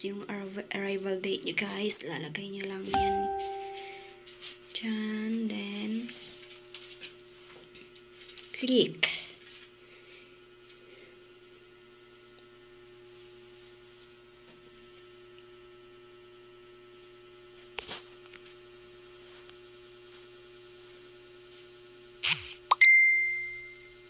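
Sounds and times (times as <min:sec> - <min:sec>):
steady background hum: 0:00.0 - 0:22.6
high-pitched whine: 0:02.9 - 0:04.2.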